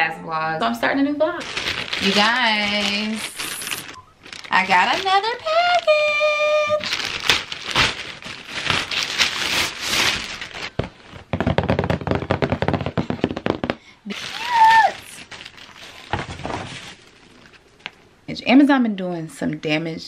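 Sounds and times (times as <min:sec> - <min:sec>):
paper packing crinkling: 0:01.4 - 0:13.5, 0:14.1 - 0:18.0
plastic mailer rustling: 0:01.4 - 0:13.5, 0:14.1 - 0:18.0.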